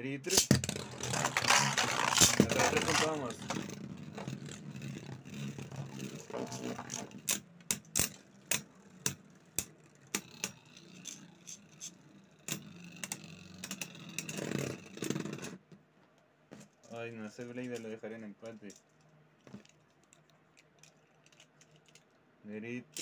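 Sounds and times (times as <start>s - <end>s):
spinning tops clacking: 0.3s - 15.5s
spinning tops whirring: 0.3s - 15.6s.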